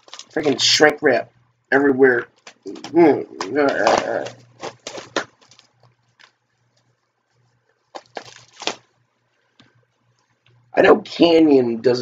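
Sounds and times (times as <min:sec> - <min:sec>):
plastic shrink wrap crinkling: 0:00.0 - 0:00.8, 0:02.1 - 0:10.6.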